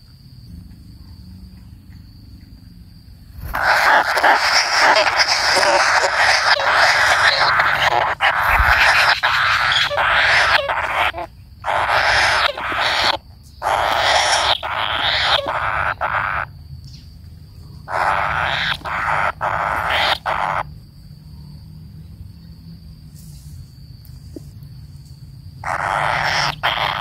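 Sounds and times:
nestlings hissing begging calls: 0:03.4 - 0:16.5, 0:17.8 - 0:20.7, 0:25.6 - 0:27.0.

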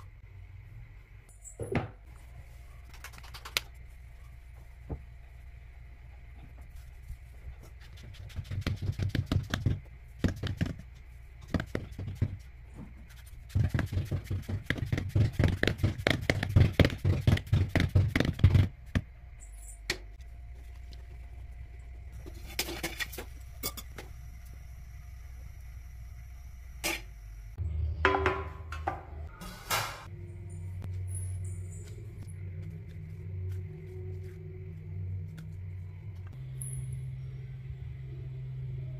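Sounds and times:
low hum: 0:00.0 - 0:10.2, 0:10.8 - 0:38.9
hands patting dough: 0:07.6 - 0:19.1.

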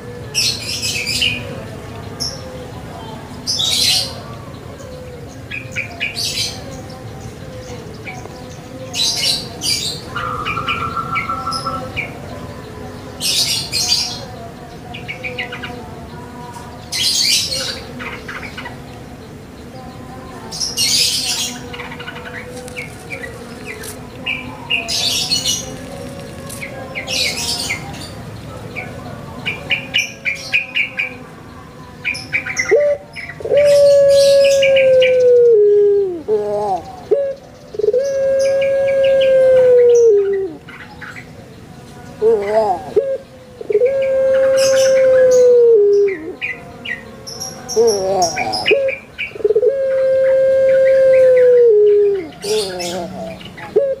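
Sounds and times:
small birds chirping: 0:00.0 - 0:35.5, 0:36.2 - 0:39.2, 0:39.9 - 0:49.7, 0:51.2 - 0:54.0
dove cooing: 0:32.4 - 0:40.8, 0:42.2 - 0:46.6, 0:47.8 - 0:54.0.

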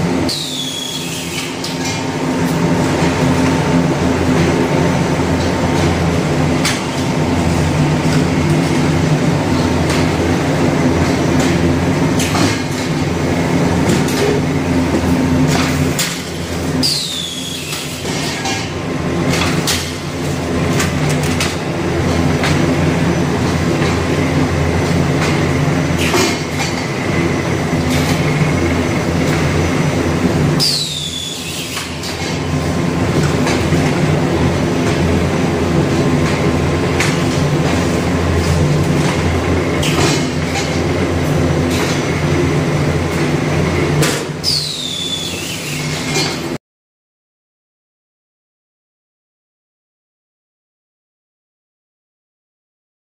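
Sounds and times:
machine humming: 0:00.0 - 0:18.0, 0:18.7 - 0:46.0
machine clicks and clacks: 0:10.9 - 0:13.1, 0:13.8 - 0:16.4, 0:17.7 - 0:20.1, 0:20.7 - 0:22.8, 0:24.8 - 0:27.1, 0:35.8 - 0:42.3, 0:43.1 - 0:44.4.

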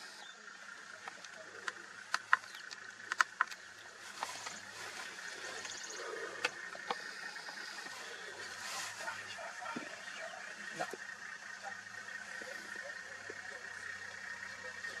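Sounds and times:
sharp clicks and ticks: 0:01.0 - 0:03.8.

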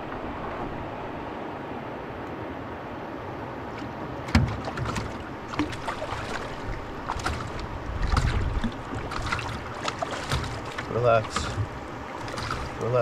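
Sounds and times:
knocks against canoe hull: 0:04.3 - 0:06.5, 0:07.1 - 0:12.8.

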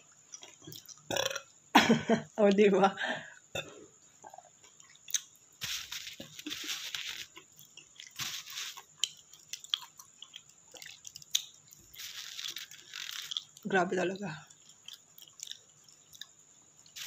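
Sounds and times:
person chewing: 0:00.1 - 0:01.4, 0:04.3 - 0:13.7, 0:14.5 - 0:17.0.

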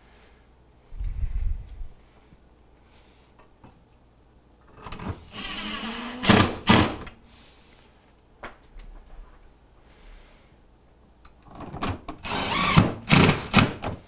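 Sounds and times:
cordless drill motor whine: 0:05.3 - 0:06.8, 0:12.2 - 0:13.6.

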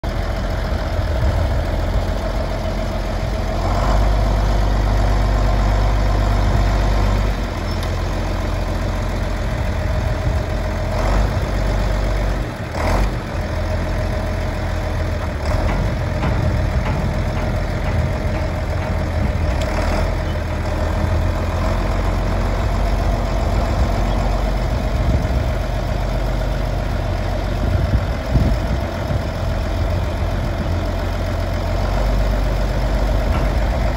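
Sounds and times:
diesel engine idling: 0:00.0 - 0:33.9.

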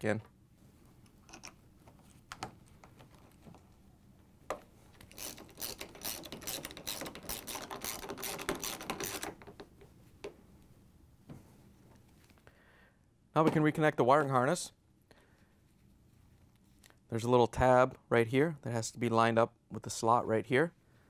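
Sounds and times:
ratchet clicking: 0:05.1 - 0:09.2.

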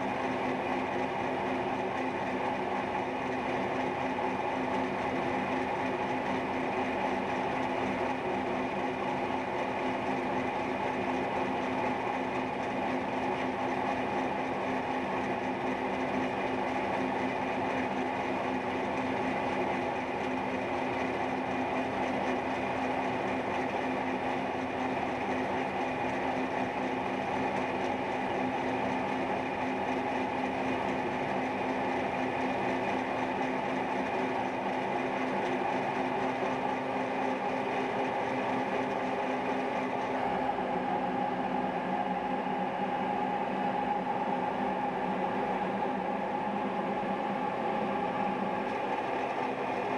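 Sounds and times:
milling machine humming: 0:00.0 - 0:49.9.

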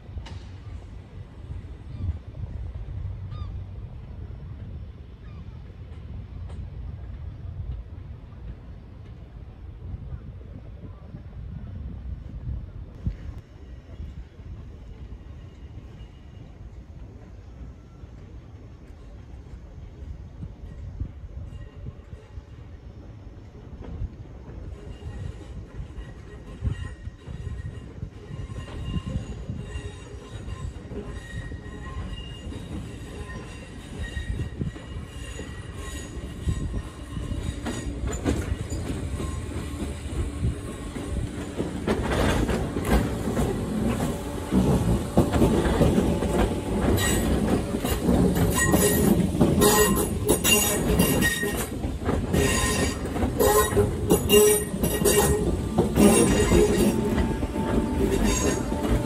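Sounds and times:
train passing: 0:00.0 - 0:59.0
train wheels squealing: 0:03.2 - 0:03.8, 0:13.4 - 0:59.0
wheels clicking on rails: 0:23.6 - 0:59.0.

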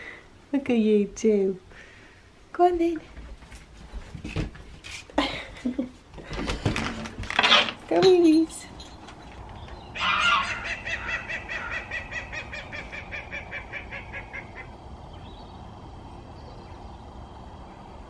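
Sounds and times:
waterfowl calling rapidly: 0:10.0 - 0:14.7.

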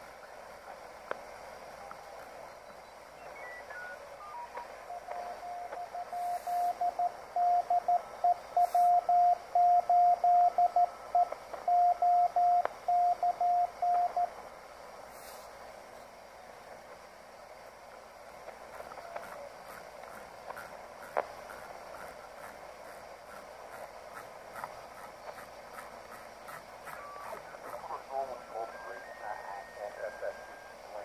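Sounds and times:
radio receiver hiss: 0:00.0 - 0:31.0
morse code tone: 0:03.2 - 0:14.3, 0:26.9 - 0:31.0.

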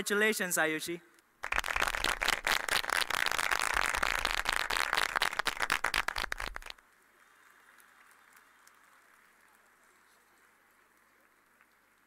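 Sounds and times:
audience applauding: 0:01.4 - 0:06.8.

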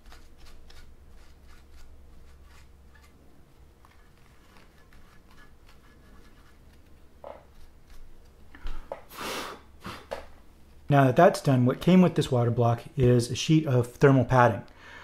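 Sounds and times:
paper towel rubbing circuit board: 0:00.0 - 0:08.4
low steady hum: 0:00.0 - 0:15.0.

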